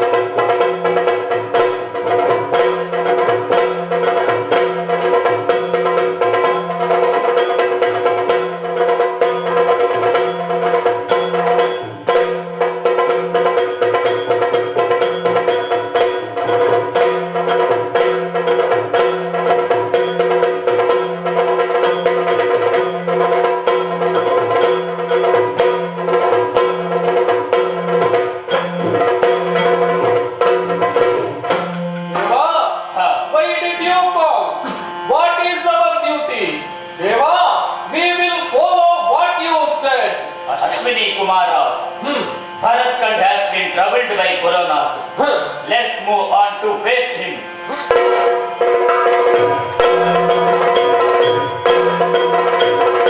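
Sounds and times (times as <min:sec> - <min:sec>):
drums beating steady rhythm: 0:00.0 - 0:53.0
sharp stick strikes: 0:31.4 - 0:32.4, 0:34.6 - 0:35.1, 0:47.7 - 0:52.9.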